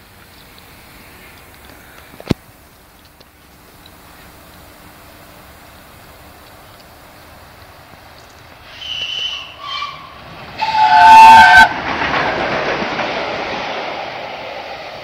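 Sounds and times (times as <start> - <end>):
train rushing past: 7.0 - 15.0
steam locomotive whistle: 8.7 - 11.8.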